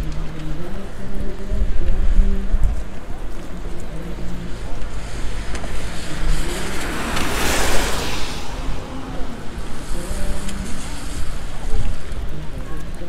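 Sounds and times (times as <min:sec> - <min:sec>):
steady low rumble: 0:00.0 - 0:13.0
car passing by: 0:03.4 - 0:12.6.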